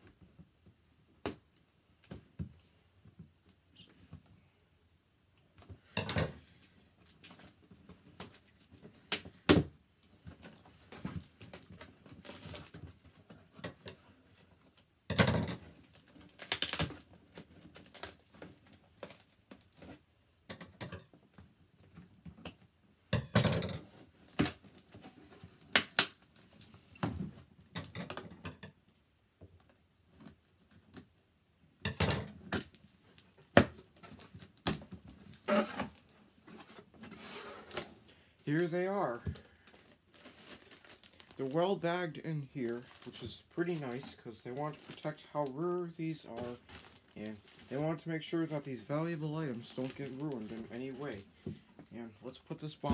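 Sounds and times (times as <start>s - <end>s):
cardboard and tape ripping: 15.9s - 19.8s, 42.6s - 51.2s.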